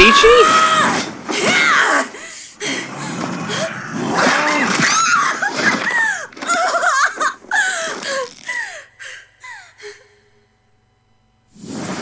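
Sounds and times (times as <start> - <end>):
high voice whimpering and wailing: 0.0 - 2.1.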